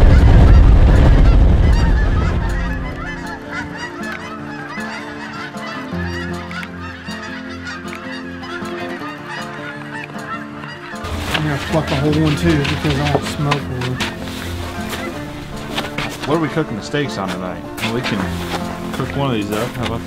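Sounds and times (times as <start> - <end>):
low rumble: 0.0 - 3.4
geese honking: 0.0 - 20.0.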